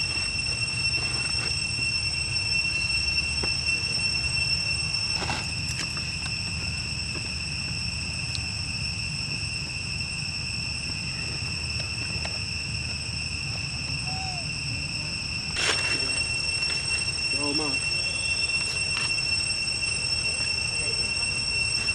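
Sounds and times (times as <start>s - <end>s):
high-pitched insect drone: 0.0s - 21.9s
short gliding call: 13.8s - 21.9s.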